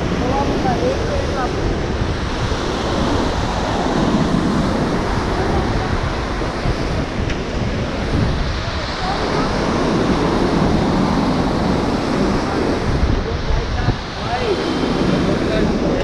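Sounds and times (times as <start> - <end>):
river rushing over boulders: 0.0 - 16.0
wind buffeting microphone: 0.0 - 16.0.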